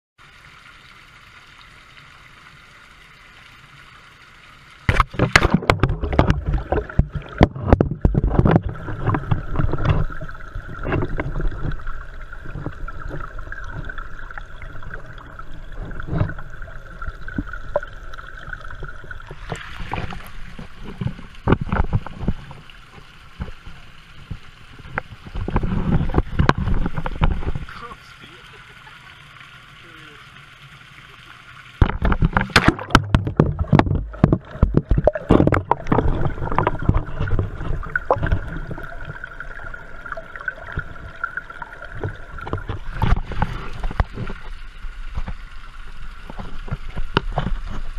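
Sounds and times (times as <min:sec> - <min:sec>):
steady underwater hum: 0:00.2 - 0:47.9
underwater sloshing and gurgling: 0:00.2 - 0:47.9
fountain water splashing: 0:26.3 - 0:47.9.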